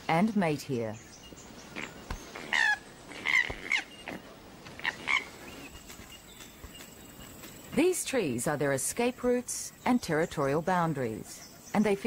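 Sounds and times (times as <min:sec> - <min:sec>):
koala squawking: 0:01.8 - 0:04.2, 0:04.8 - 0:05.3.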